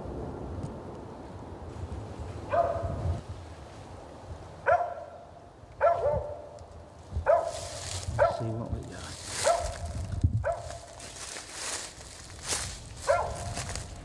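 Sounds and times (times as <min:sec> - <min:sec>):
dog barking: 0:02.5 - 0:03.0, 0:04.6 - 0:05.2, 0:05.8 - 0:06.6, 0:07.2 - 0:08.6, 0:09.3 - 0:10.9, 0:13.0 - 0:13.7.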